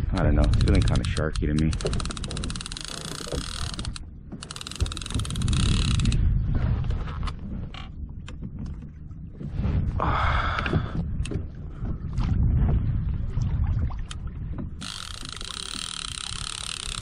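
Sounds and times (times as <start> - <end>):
water rumble: 0.0 - 17.0
wind: 0.0 - 17.0
fishing reel drag clicking: 0.2 - 6.2, 14.8 - 17.0.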